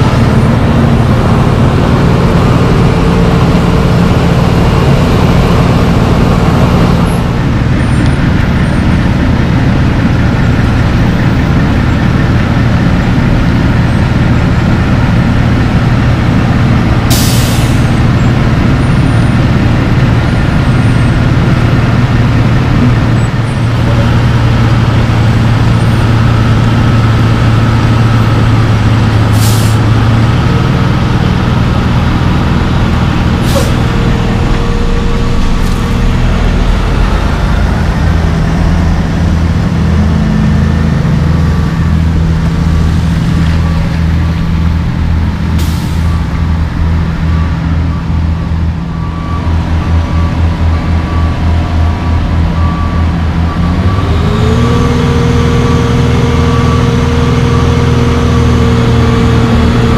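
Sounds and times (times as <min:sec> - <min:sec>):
heavy diesel truck engines: 0:00.0 - 0:59.9
air brakes hissing: 0:17.1 - 0:18.0, 0:29.3 - 0:29.9, 0:33.4 - 0:34.0, 0:45.6 - 0:46.2.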